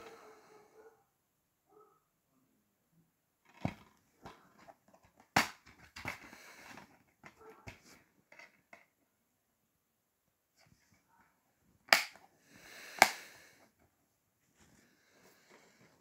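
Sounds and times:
plastic case rustling: 0:03.4 - 0:08.8
plastic case snapping open: 0:11.9 - 0:12.2, 0:13.0 - 0:13.2.

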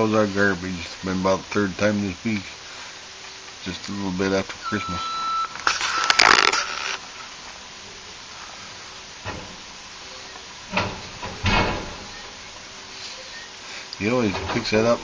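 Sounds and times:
loud rustle: 0:05.5 - 0:07.4
garbage truck rumble: 0:07.0 - 0:15.0.

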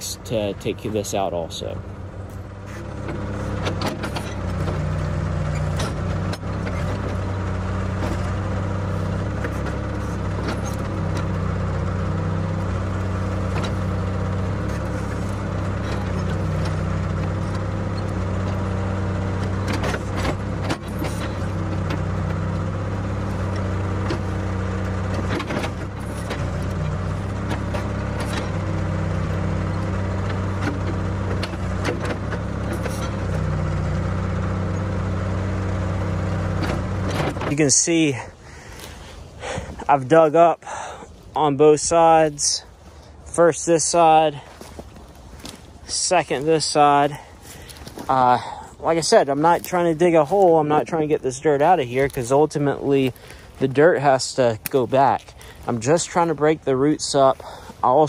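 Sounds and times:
backhoe engine running: 0:00.0 - 0:58.0.

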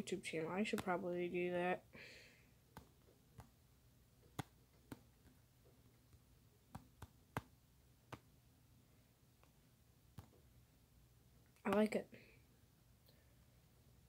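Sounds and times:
fingertips tapping touchscreen: 0:00.4 - 0:01.7, 0:02.6 - 0:08.4, 0:09.3 - 0:10.6, 0:11.5 - 0:12.0.

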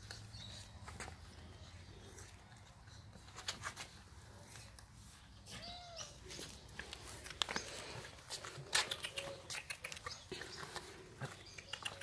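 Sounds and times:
paws tapping on paving stones: 0:05.6 - 0:12.0
puppy mouthing a can: 0:08.6 - 0:10.3.

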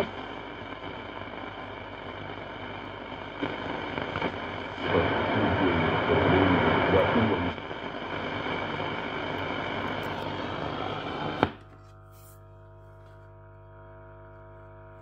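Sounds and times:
radio hum with overtones: 0:00.0 - 0:15.0
radio static hiss: 0:00.0 - 0:15.0
voice in radio static: 0:03.4 - 0:08.0.

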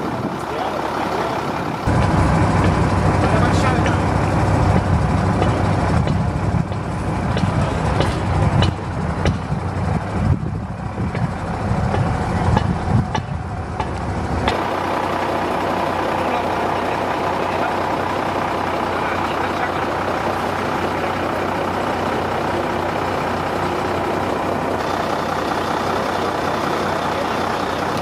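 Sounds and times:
heavy engine rumbling: 0:00.0 - 0:28.0
knocks and clicks: 0:04.7 - 0:09.5.

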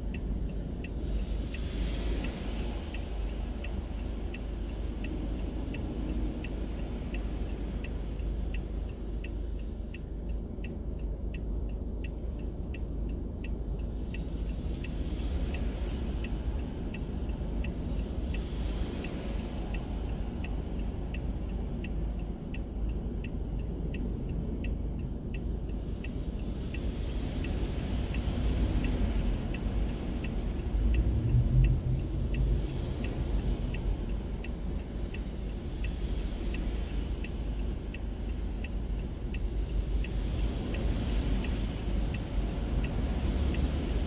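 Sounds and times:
turn signal ticking: 0:00.0 - 0:44.0
low vehicle rumble: 0:10.0 - 0:44.0.

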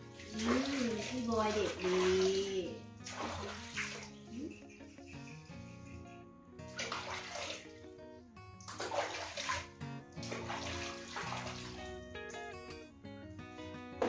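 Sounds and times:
water splashing in a basin: 0:00.0 - 0:04.4, 0:06.7 - 0:07.8, 0:08.6 - 0:12.0
background music: 0:00.0 - 0:14.0.

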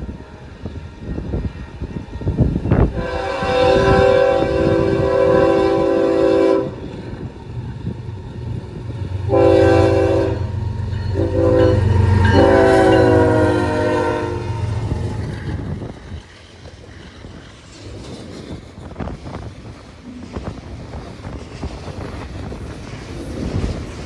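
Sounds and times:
train cars rolling by: 0:00.0 - 0:24.0
locomotive horn blasts: 0:02.7 - 0:07.0, 0:09.3 - 0:15.1.

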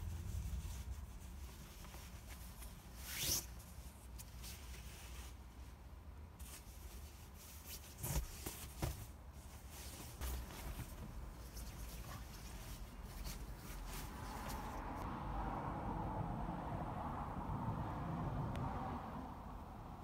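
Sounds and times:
nylon blanket rustling: 0:00.0 - 0:15.0
low steady rumble: 0:00.0 - 0:20.0.

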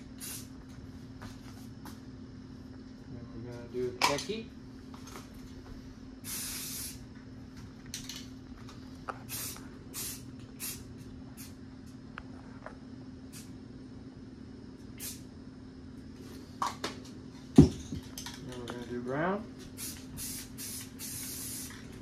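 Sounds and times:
steady low hum: 0:00.0 - 0:22.0
spray can hissing bursts: 0:00.2 - 0:00.5, 0:06.2 - 0:07.0, 0:09.3 - 0:10.8, 0:15.0 - 0:15.2, 0:19.8 - 0:21.8.

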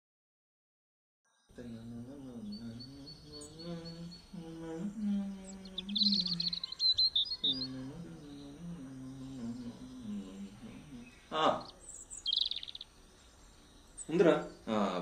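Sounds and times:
birds chirping: 0:01.3 - 0:15.0
person humming a melody: 0:01.6 - 0:06.8, 0:07.4 - 0:11.3.

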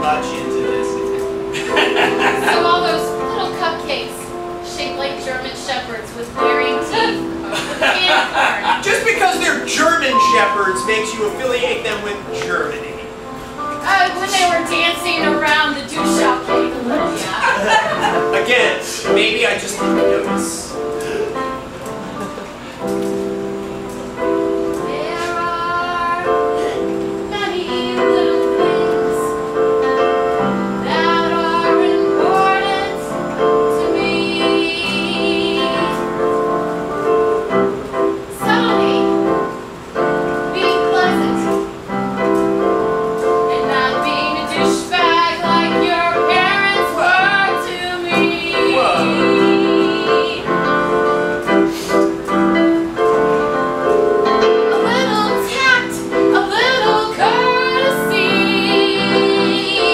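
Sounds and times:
sustained keyboard chords: 0:00.0 - 0:59.9
woman singing: 0:13.8 - 0:17.6, 0:24.8 - 0:36.2, 0:38.3 - 0:39.4, 0:40.5 - 0:41.7, 0:43.4 - 0:50.9, 0:54.4 - 0:59.9.

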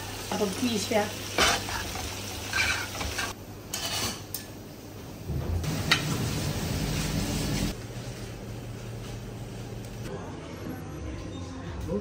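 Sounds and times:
spaghetti sizzling in a pan: 0:00.0 - 0:04.0
metal tongs scraping a pan: 0:01.4 - 0:04.5.

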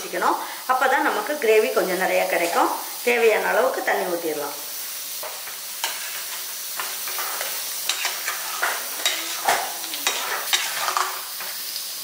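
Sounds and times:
steady hiss: 0:00.0 - 0:12.0
ladle clinking and scraping pot: 0:05.8 - 0:11.3.

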